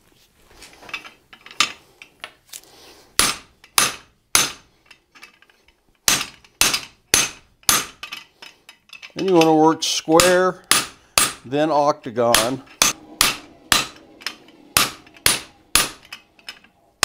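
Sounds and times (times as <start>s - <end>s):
small metallic clinks: 7.6s - 9.6s
hammer striking metal die: 10.2s - 11.5s, 12.3s - 16.2s.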